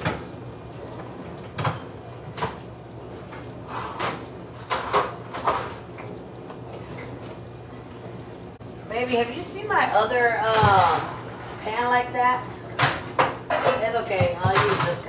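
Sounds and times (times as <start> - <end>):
low steady hum: 0.0 - 15.0
pans clattering: 3.4 - 5.9, 12.7 - 15.0.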